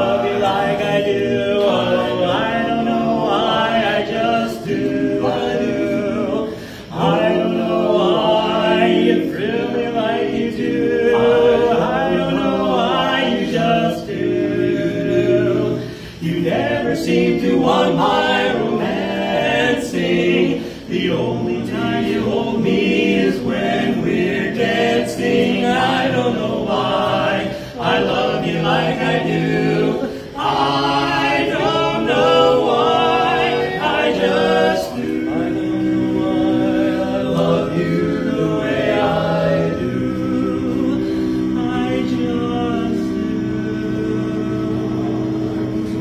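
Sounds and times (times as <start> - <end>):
male quartet singing a cappella: 0.0 - 46.0.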